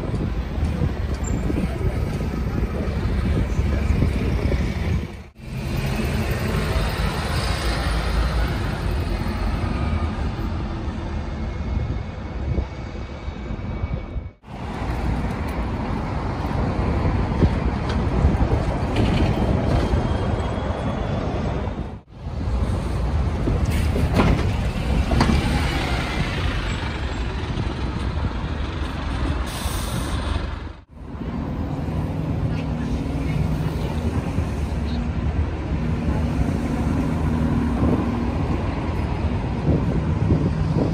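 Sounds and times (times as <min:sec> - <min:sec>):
bus engine and tyres passing: 0:00.0 - 0:40.9
street traffic noise: 0:00.0 - 0:40.9.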